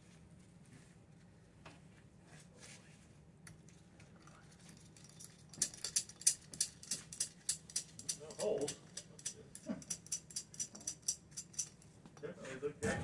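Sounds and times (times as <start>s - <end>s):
metal-on-metal clicks and taps: 5.0s - 11.8s.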